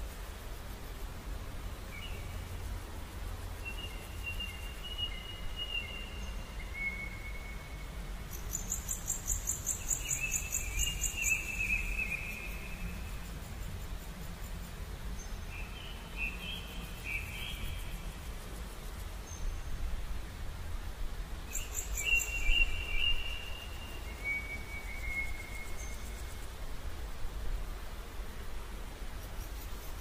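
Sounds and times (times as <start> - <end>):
thin whistled calls: 3.6 - 13.2, 15.3 - 18.1, 21.5 - 26.5.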